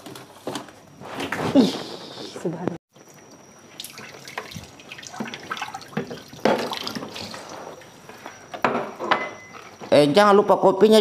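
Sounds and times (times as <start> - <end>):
faint steady high whine: 0.0 - 11.0.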